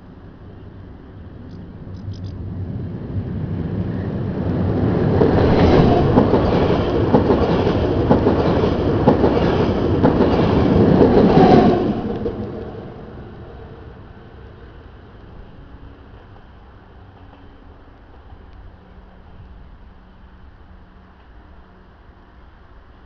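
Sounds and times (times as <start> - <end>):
train wheels clacking over rails: 5.1 - 12.8.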